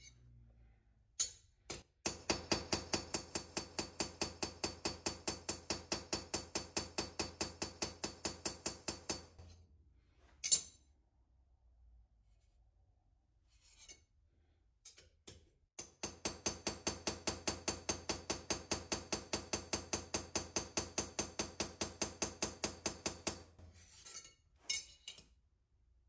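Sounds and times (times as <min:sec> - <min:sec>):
hammer tapping metal blade: 0:01.2 - 0:09.6, 0:10.4 - 0:10.9, 0:14.9 - 0:25.3.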